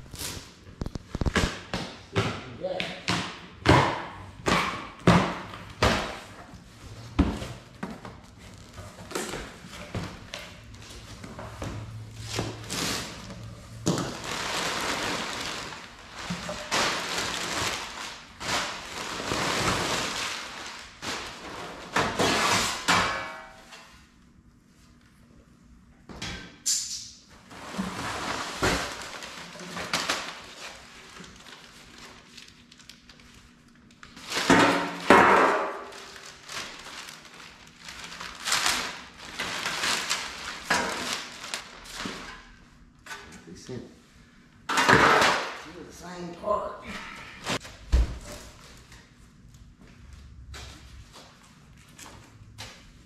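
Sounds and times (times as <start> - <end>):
packing paper crumpling: 0.0 - 1.4, 14.1 - 21.5, 28.2 - 34.5, 35.8 - 42.0.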